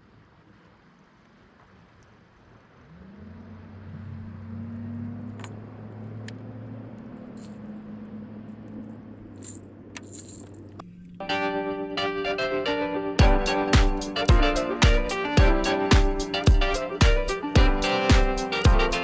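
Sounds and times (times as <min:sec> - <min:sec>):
light metallic clinks: 0:07.2 - 0:07.8, 0:08.5 - 0:11.2.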